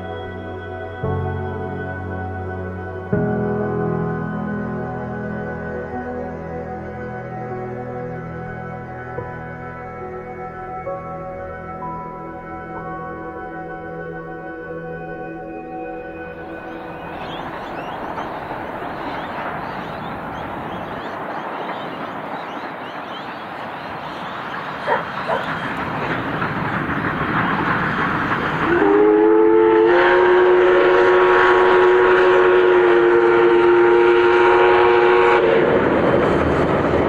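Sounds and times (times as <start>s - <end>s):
steam locomotive running: 16.1s - 37.0s
steam whistle blast: 28.7s - 35.8s.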